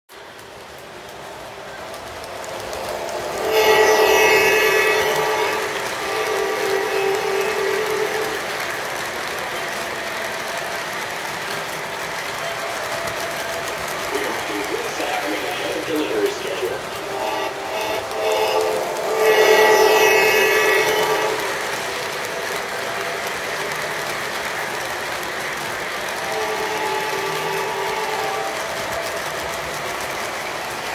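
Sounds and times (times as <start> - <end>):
model train cars clattering: 0.1 - 30.9
model locomotive horn: 2.4 - 11.1, 12.4 - 30.8.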